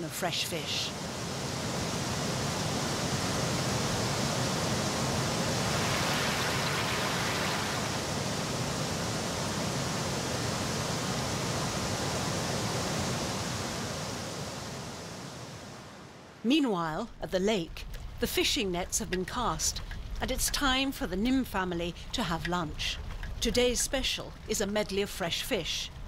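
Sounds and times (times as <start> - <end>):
whitewater rushing over rocks: 1.4 - 14.8.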